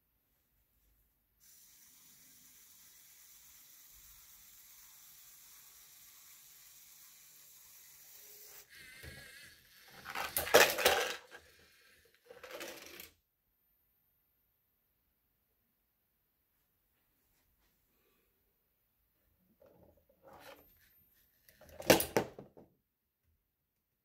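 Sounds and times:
faint motor whine: 1.4s - 10.3s
plastic clattering: 10.0s - 11.4s, 12.3s - 13.1s, 21.6s - 22.6s.

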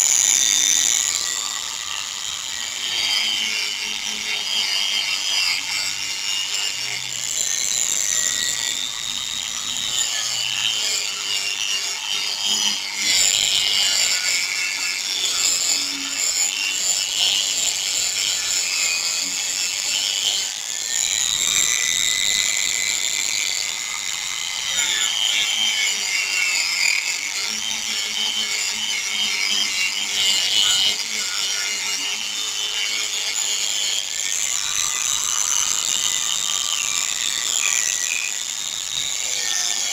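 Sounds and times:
power sander whine: 0.0s - 39.9s.

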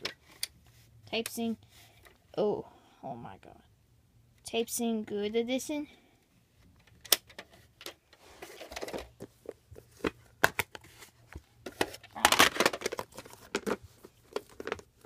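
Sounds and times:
plastic scraping rustles: 7.4s - 15.0s.

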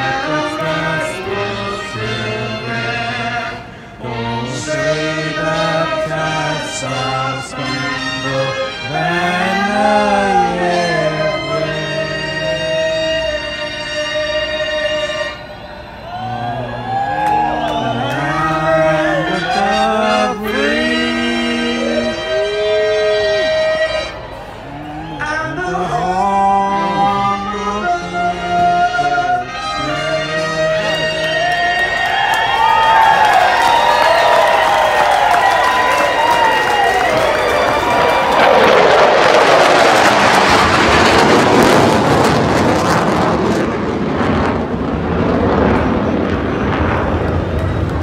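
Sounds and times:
person singing long held notes: 0.0s - 15.4s, 16.0s - 32.2s
music: 0.0s - 16.2s, 18.8s - 24.4s, 25.0s - 33.2s
jet aircraft flyover roar: 0.0s - 48.0s.

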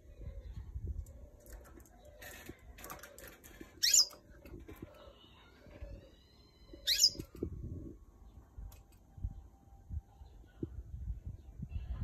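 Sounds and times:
canary rising chirps: 3.8s - 4.2s, 5.1s - 7.4s.

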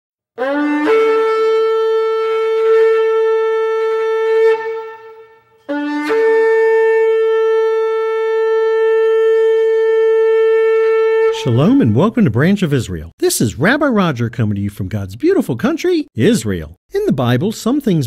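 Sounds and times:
shofar blasts: 0.4s - 12.5s.

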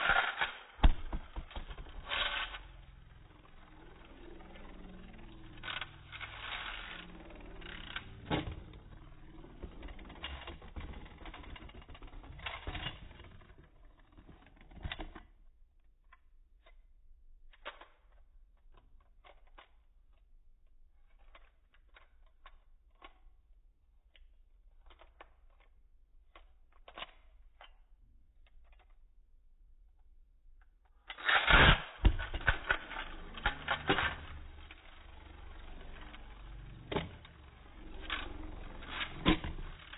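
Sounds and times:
spinning top rattling on plastic: 0.0s - 15.0s, 31.1s - 39.9s.

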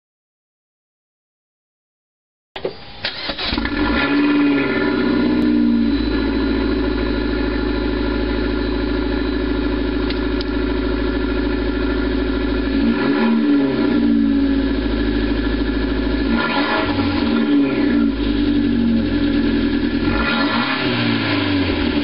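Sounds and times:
car engine idling: 4.6s - 12.9s, 13.7s - 20.2s.

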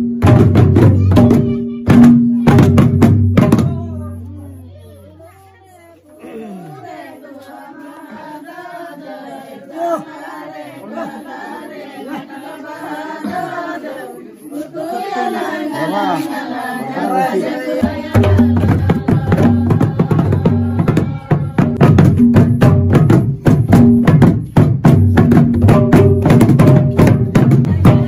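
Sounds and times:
loud fast drumming: 0.0s - 4.3s, 17.8s - 28.0s
voices singing and calling: 0.9s - 23.4s, 27.1s - 28.0s.

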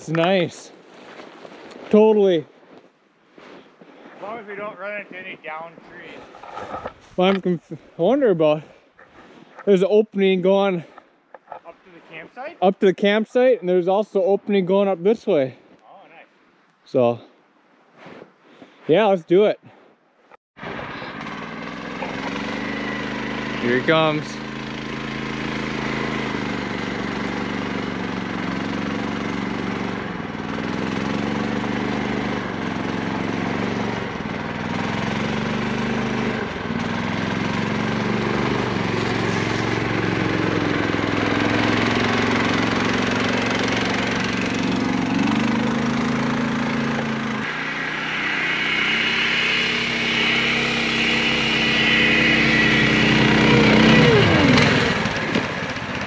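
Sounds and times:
snow machine engines revving: 0.0s - 2.4s, 3.9s - 15.6s, 20.6s - 56.0s
high engine whine: 20.6s - 56.0s.

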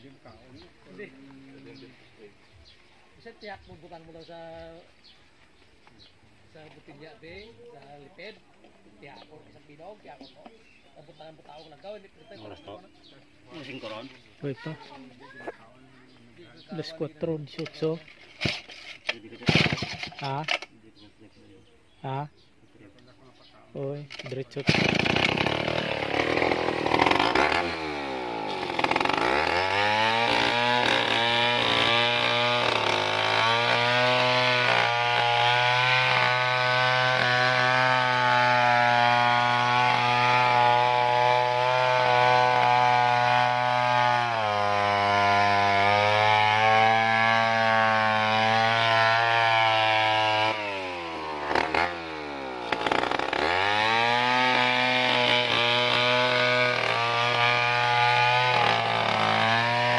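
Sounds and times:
chainsaw sawing log: 17.5s - 20.7s, 24.1s - 59.9s.

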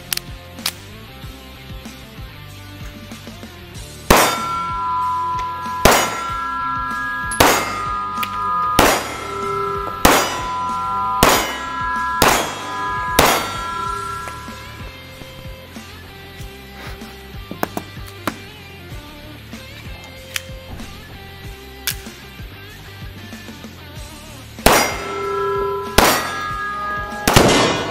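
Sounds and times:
pistol shots: 4.1s - 4.6s, 5.8s - 6.3s, 7.4s - 7.7s, 8.8s - 9.2s, 10.0s - 10.5s, 11.2s - 11.6s, 12.2s - 12.6s, 13.2s - 13.6s, 24.6s - 25.1s, 26.0s - 26.4s, 27.2s - 27.9s
metallic ringing: 4.1s - 15.8s, 24.6s - 27.9s.

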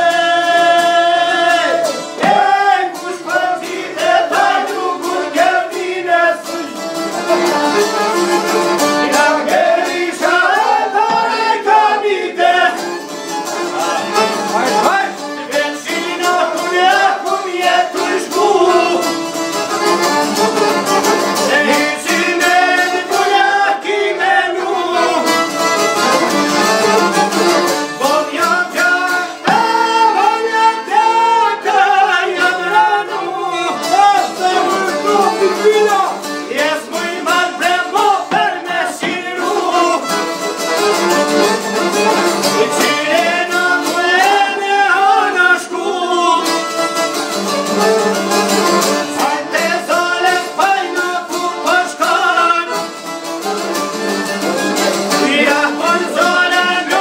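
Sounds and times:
man singing: 0.0s - 7.4s, 9.0s - 12.9s, 13.7s - 19.2s, 21.4s - 25.4s, 28.0s - 40.2s, 42.5s - 46.6s, 49.0s - 52.9s, 55.1s - 57.0s
accordion: 0.0s - 57.0s
lute strumming: 0.0s - 57.0s
violin: 12.4s - 16.8s, 24.6s - 30.3s, 39.2s - 43.3s, 46.4s - 49.7s.

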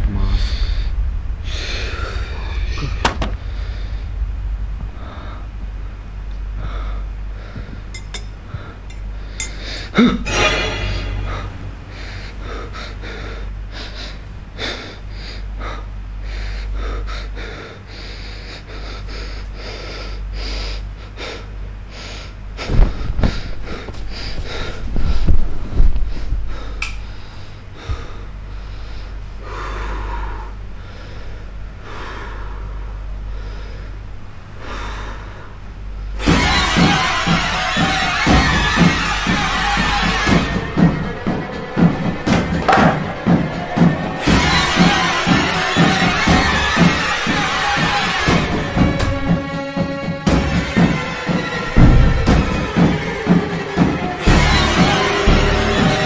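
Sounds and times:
sudden loud hits: 0.0s - 5.0s, 9.7s - 12.3s, 51.8s - 53.0s
low rumbling drone: 0.0s - 56.0s.

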